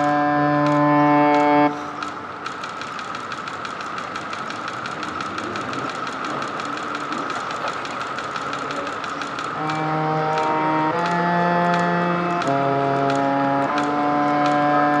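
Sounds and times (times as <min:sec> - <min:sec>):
held music chord: 0:00.0 - 0:02.0, 0:09.6 - 0:15.0
rapid mechanical clicking: 0:00.0 - 0:15.0.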